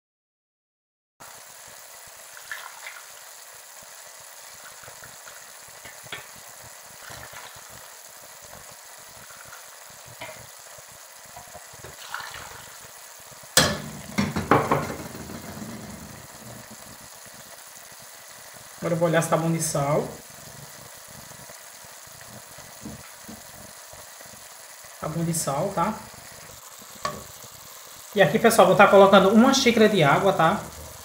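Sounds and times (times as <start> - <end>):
water sizzling and bubbling in pan: 1.2 - 31.0
loud knock: 13.6 - 15.6.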